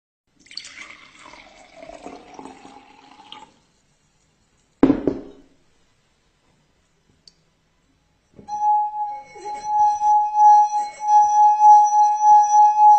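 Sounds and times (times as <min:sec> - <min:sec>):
water pouring into a glass: 0:00.3 - 0:03.6.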